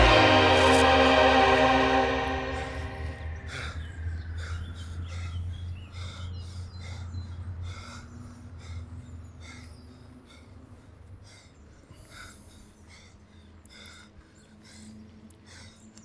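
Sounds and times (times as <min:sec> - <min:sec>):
low hum: 0:00.0 - 0:05.0
man breathing hard: 0:02.6 - 0:16.0.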